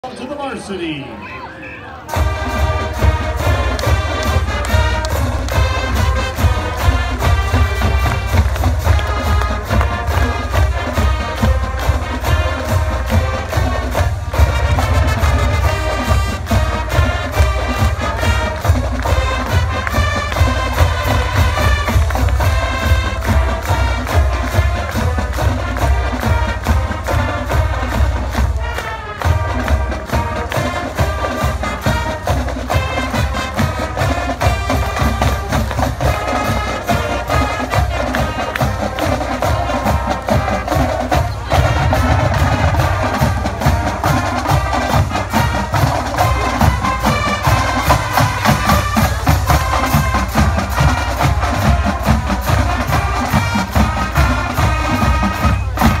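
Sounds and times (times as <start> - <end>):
brass instruments: 0.0 - 56.0
drumline beat: 2.1 - 56.0.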